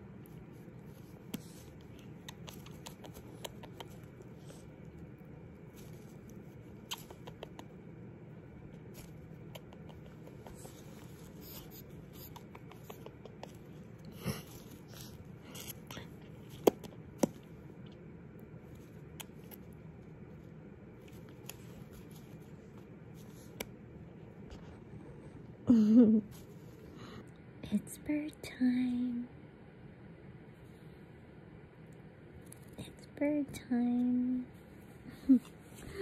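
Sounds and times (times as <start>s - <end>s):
low room hum: 0.0s - 36.0s
parrot nibbling clicks and scratches: 0.1s - 7.9s, 8.6s - 17.6s, 18.7s - 19.8s, 20.4s - 24.7s.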